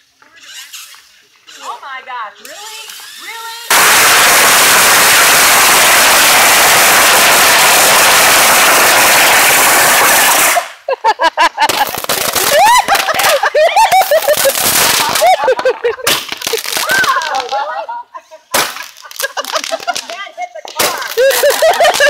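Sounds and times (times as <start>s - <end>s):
firecrackers crackling: 2.4s - 22.0s
scattered pops: 3.7s - 10.8s, 11.6s - 17.7s, 18.5s - 22.0s.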